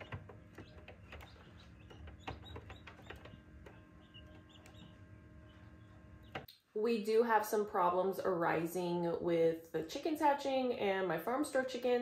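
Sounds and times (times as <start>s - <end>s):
chicks peeping: 0.0s - 6.5s
steady low hum: 0.0s - 6.5s.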